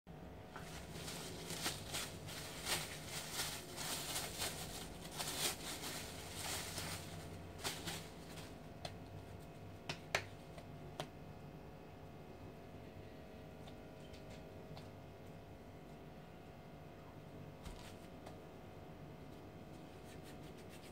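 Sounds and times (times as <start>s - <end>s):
cling film crinkling: 0.5s - 8.8s.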